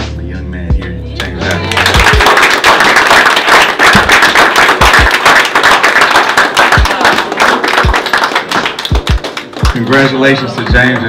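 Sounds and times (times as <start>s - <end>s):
background music: 0.0s - 11.0s
people applauding: 1.2s - 11.0s.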